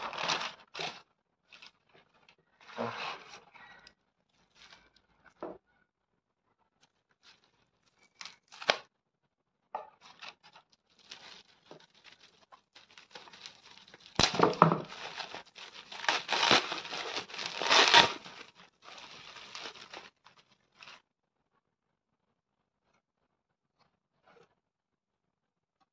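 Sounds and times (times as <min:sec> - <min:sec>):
bubble wrap crinkling: 0:00.0 - 0:03.3, 0:04.3 - 0:05.0, 0:06.9 - 0:08.9, 0:10.0 - 0:21.0.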